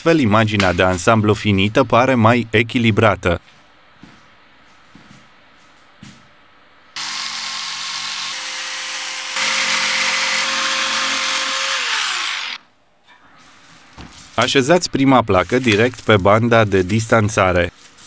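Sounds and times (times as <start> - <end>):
electric jigsaw sawing: 7.0 - 12.6.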